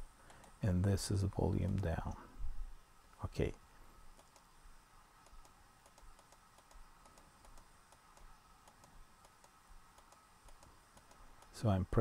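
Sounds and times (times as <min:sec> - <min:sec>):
faint clicks: 0:00.2 - 0:00.6, 0:04.1 - 0:04.5, 0:05.2 - 0:11.6.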